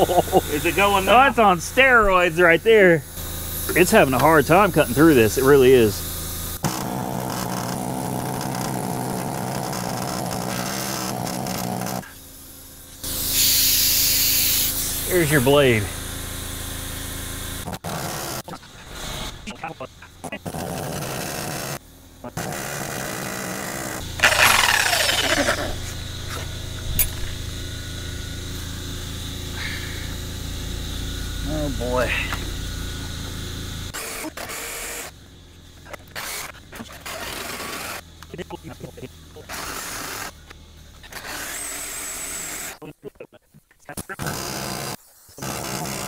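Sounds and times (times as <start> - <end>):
compressed air hissing: 0.0 - 21.8, 22.4 - 34.6
low hum: 18.5 - 34.0
cut-off tool whine spinning down: 22.8 - 34.0
sharp click: 26.3 - 27.2.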